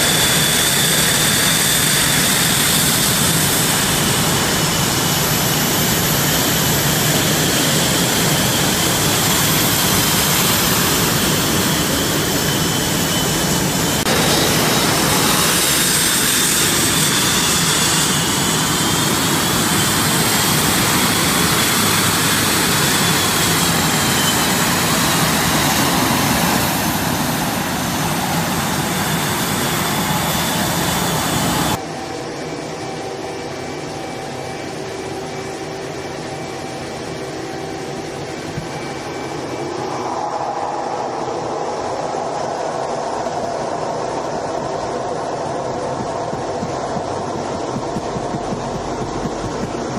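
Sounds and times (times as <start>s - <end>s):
jet engines running: 0.0s - 49.9s.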